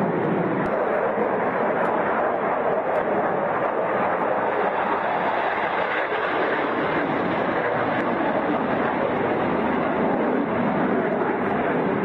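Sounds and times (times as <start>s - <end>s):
jet engine roar overhead: 0.0s - 12.0s.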